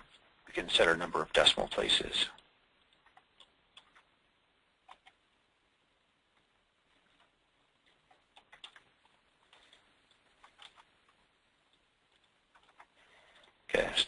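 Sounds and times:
computer clicking: 1.6 - 4.2, 4.8 - 5.3, 6.3 - 13.6.

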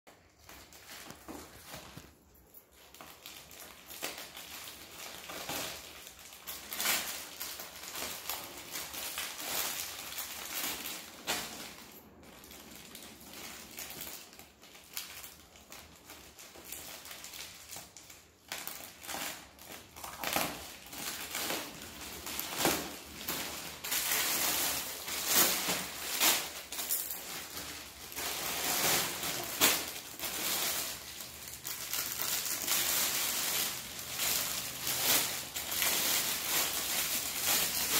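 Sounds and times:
parcel wrapping crinkling: 0.1 - 37.9.

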